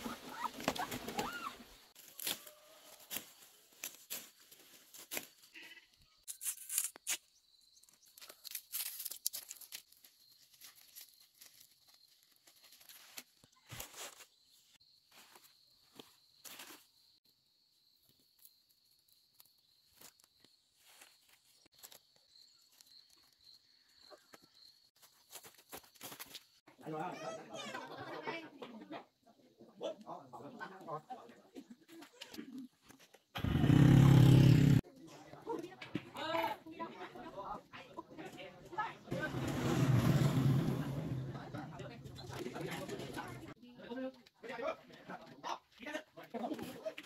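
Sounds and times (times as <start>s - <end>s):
leaves rustling: 0.0s - 5.6s, 8.1s - 16.9s
vegetable stems snapping: 2.0s - 2.5s.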